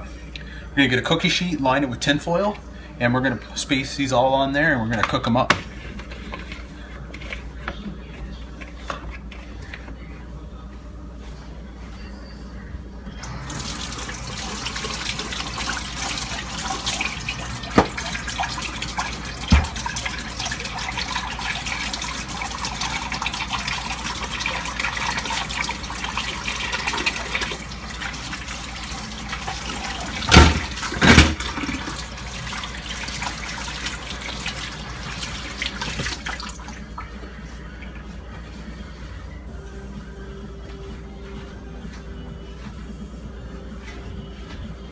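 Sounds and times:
water running from a tap: 0:13.4 - 0:37.0.

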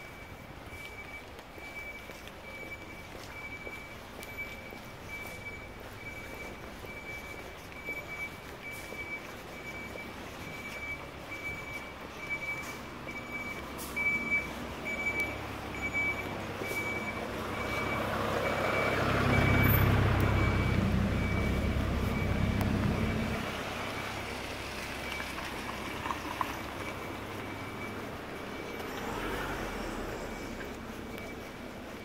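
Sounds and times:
truck reversing alarm beeping: 0:00.0 - 0:32.0
vehicle engine rumble: 0:00.0 - 0:32.0.

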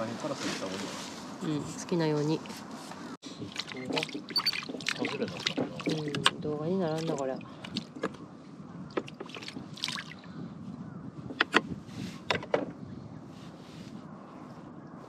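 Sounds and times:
water lapping against boat hull: 0:03.3 - 0:10.4.

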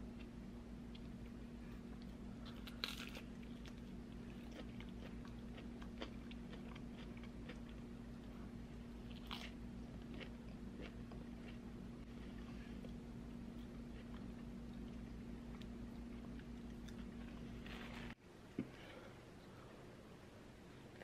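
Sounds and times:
soft chewing: 0:00.2 - 0:18.8
pastry crunching: 0:02.4 - 0:07.7.

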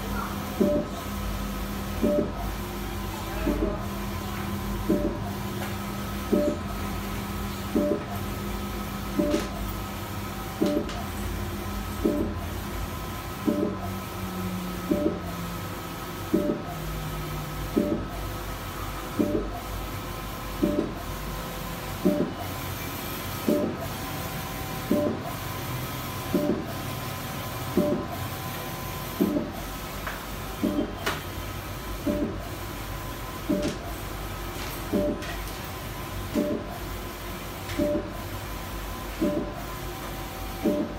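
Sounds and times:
inkjet printer whirring: 0:00.0 - 0:40.9.

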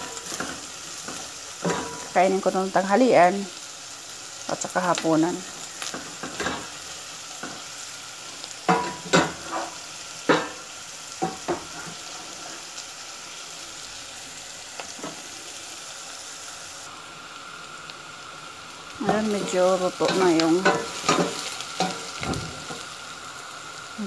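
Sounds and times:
food sizzling in butter: 0:00.0 - 0:24.0.

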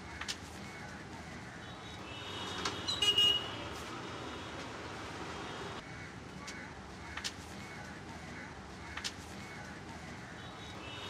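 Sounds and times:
street traffic noise: 0:00.0 - 0:11.0
vehicle horn toot: 0:01.8 - 0:04.6.

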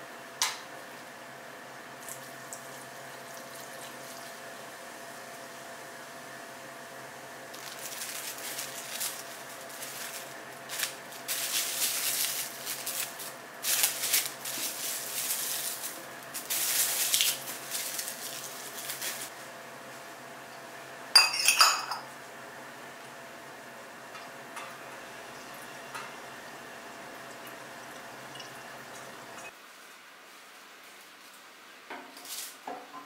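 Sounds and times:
plastic cling wrap crinkling: 0:07.5 - 0:19.4
metal funnel clinking on glass: 0:21.2 - 0:22.0.

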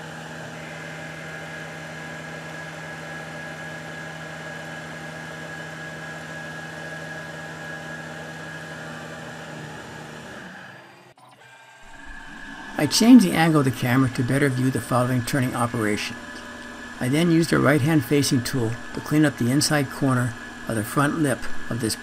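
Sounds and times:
lathe machine hum: 0:00.0 - 0:22.0
high whine: 0:11.8 - 0:22.0.

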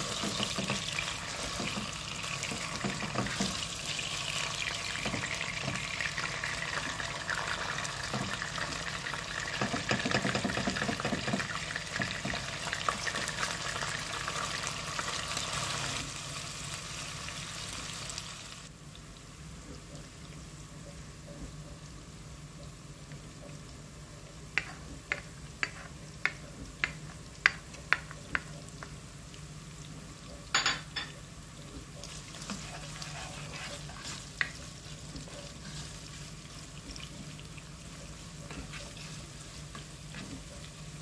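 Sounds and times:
meat sizzling in hot oil: 0:00.0 - 0:18.7, 0:31.3 - 0:41.0
plastic spoon stirring pot: 0:32.0 - 0:37.4.

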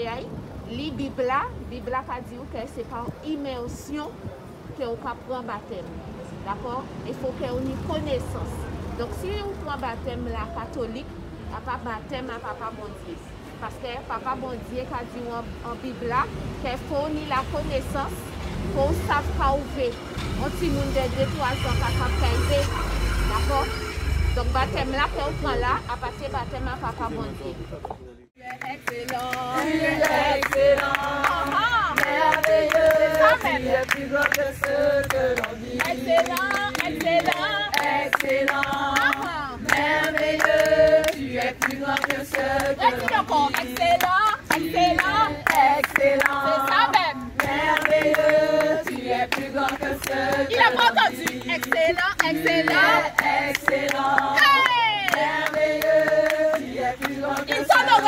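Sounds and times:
group of people singing: 0:28.4 - 0:58.0
hands clapping in time: 0:28.4 - 0:58.0.

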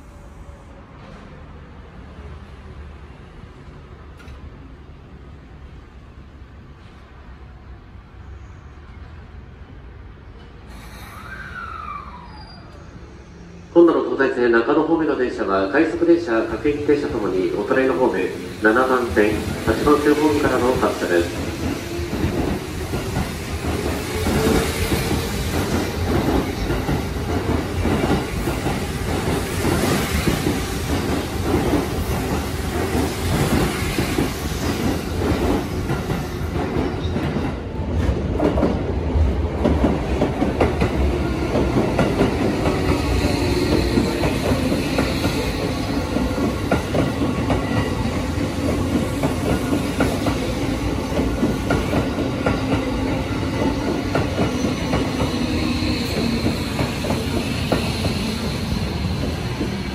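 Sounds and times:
train wheels rumbling and clicking: 0:04.1 - 0:04.6, 0:15.9 - 0:59.9.

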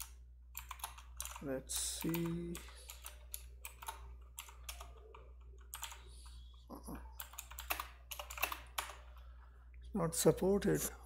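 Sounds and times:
typing on computer keyboard: 0:00.0 - 0:06.2, 0:07.2 - 0:09.2.

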